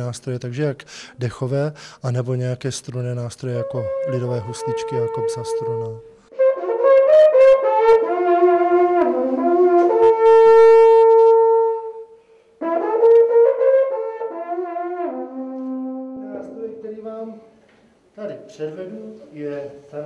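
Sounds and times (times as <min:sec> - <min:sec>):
wooden shepherd's horn tune: 0:03.2 - 0:16.6.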